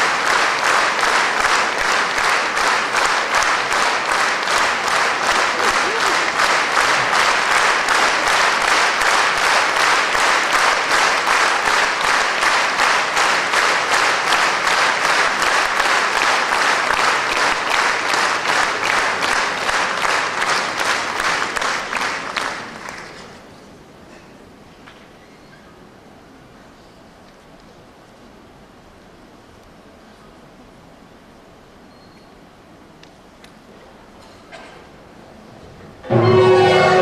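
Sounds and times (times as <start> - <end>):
audience applauding: 0.0 - 23.5, 36.1 - 37.0.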